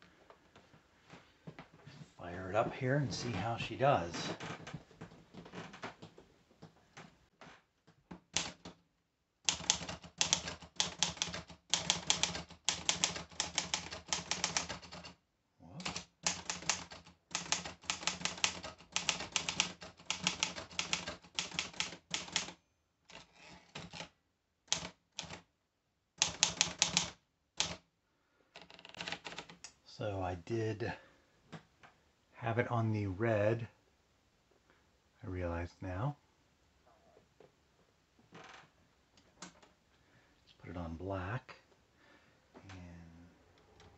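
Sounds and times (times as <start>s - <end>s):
typewriter keys clacking: 8.3s - 8.7s, 9.5s - 15.2s, 15.8s - 24.1s, 24.7s - 25.4s, 26.2s - 27.8s.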